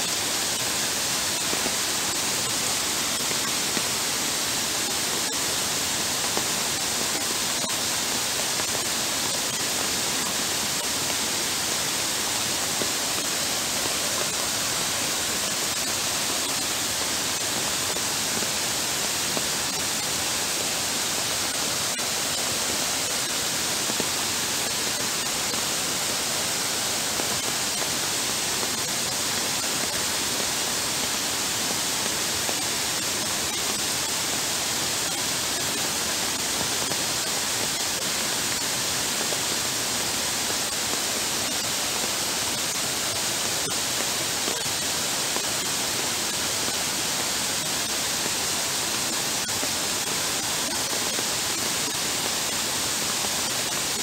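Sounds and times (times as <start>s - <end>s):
heavy rain: 0.0s - 54.0s.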